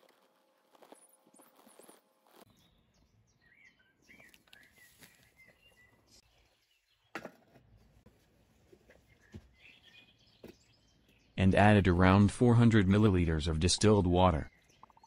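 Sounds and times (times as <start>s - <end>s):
faint bird chirps: 14.5s - 15.0s.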